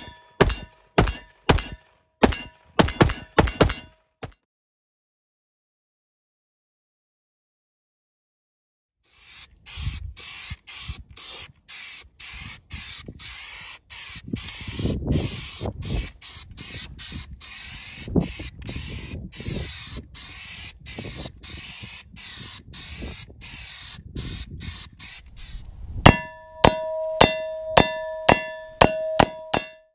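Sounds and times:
bullets clanging on steel target: 0.0s - 4.4s, 26.1s - 29.9s
spray paint can hissing: 9.1s - 25.9s.

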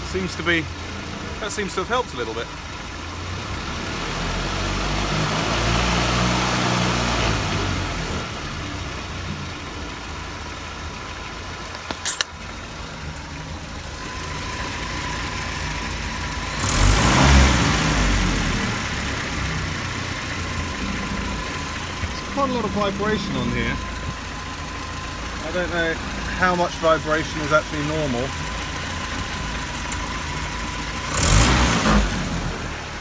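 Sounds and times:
car engine revving: 0.0s - 11.7s, 12.6s - 33.0s
sharp click: 11.7s - 12.4s.

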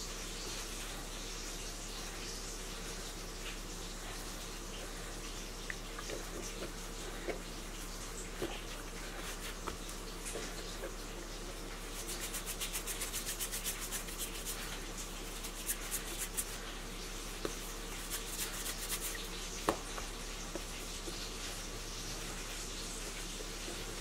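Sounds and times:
hands rolling dough on a surface: 5.8s - 24.0s.

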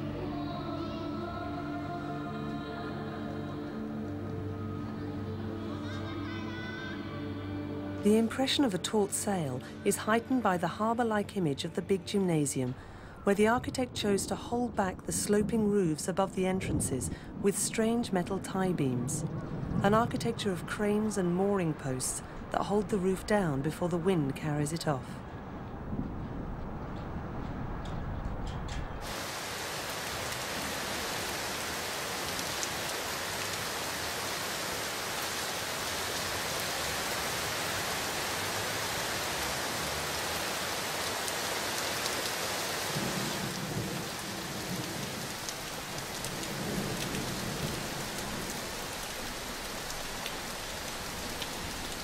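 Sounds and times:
rain splashing on hard surfaces: 12.6s - 23.0s, 28.4s - 52.0s.

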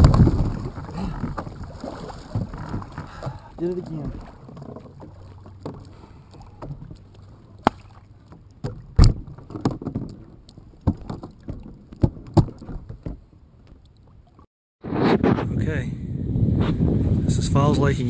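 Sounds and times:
gear knocking on plastic kayak: 0.0s - 13.9s.

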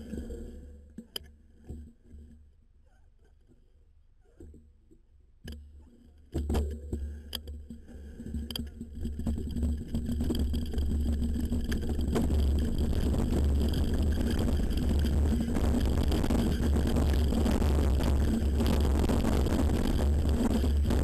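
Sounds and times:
bike rattling over bumps: 6.3s - 21.0s
tyre noise: 8.8s - 21.0s
low wind rumble: 8.9s - 21.0s.

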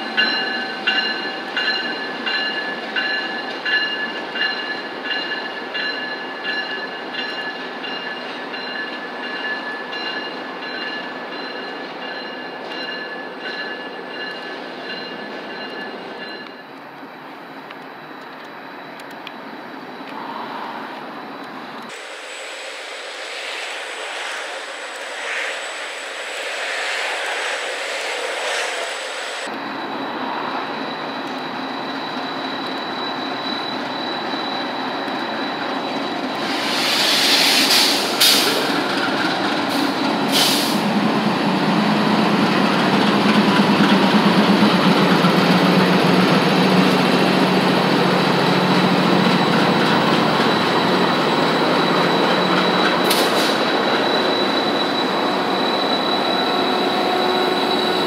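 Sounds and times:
diesel locomotives passing: 0.0s - 58.0s.

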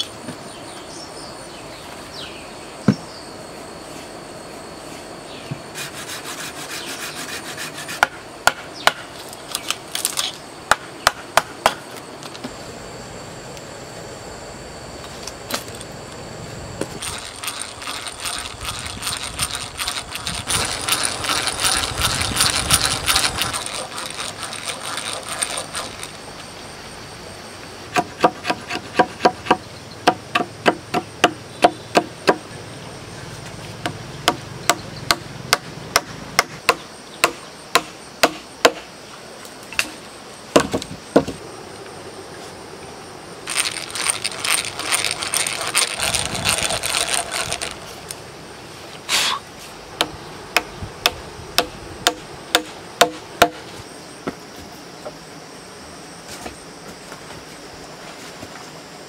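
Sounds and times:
hatchet tapping wooden peg: 28.0s - 32.4s.

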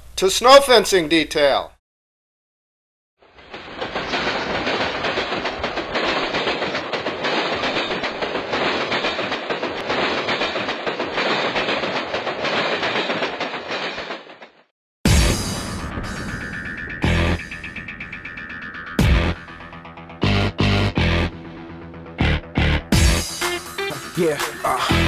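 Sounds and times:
train wheels on rails: 3.2s - 14.7s, 23.0s - 25.0s
small knocks and rattles: 3.4s - 14.6s.

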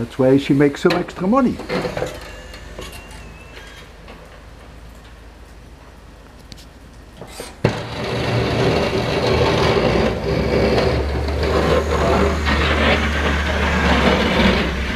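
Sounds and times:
plow blade scraping snow: 0.0s - 3.9s, 7.3s - 14.9s
truck engine drone: 0.0s - 14.9s.

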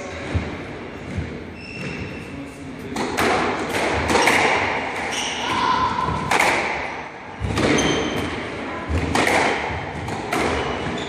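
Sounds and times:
shoes squeaking on wooden floor: 0.9s - 2.6s, 10.5s - 11.0s.

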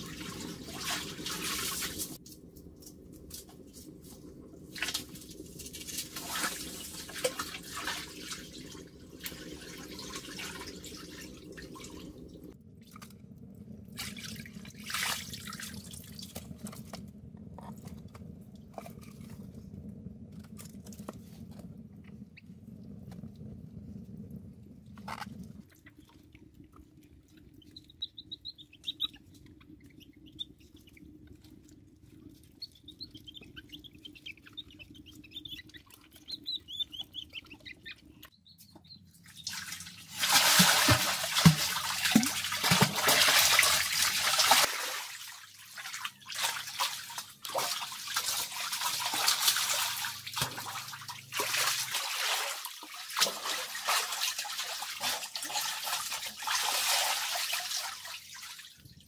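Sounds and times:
pool water splashing: 0.0s - 2.2s, 39.1s - 58.8s
high squeaky chirps: 32.5s - 39.1s.

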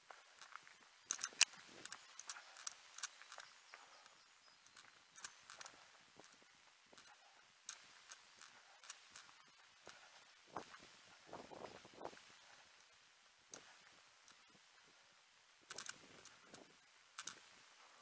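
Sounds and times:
footsteps on a path: 0.0s - 12.8s.

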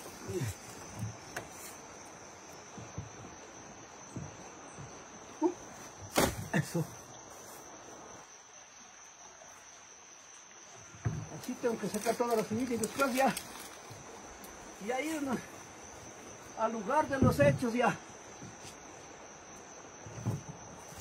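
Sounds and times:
insects chirring: 0.0s - 21.0s
sugarcane stalks knocking on wood: 6.0s - 6.6s, 11.0s - 13.8s, 17.0s - 17.7s.

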